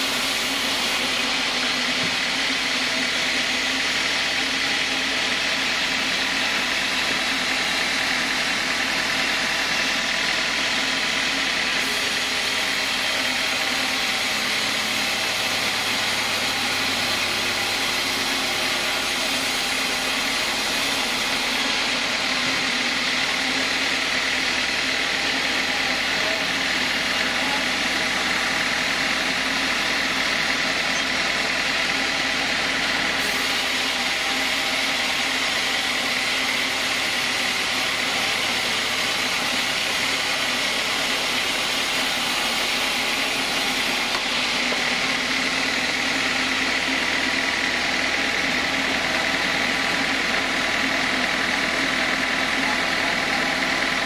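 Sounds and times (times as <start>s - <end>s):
high hiss of saw cutting: 0.0s - 3.6s, 33.0s - 45.7s
band saw machine hum: 0.0s - 54.0s.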